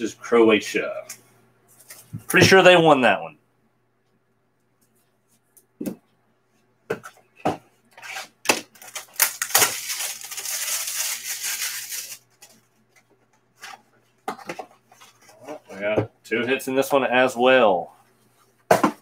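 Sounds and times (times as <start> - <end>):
plastic shrink-wrap crinkling: 8.7 - 12.6.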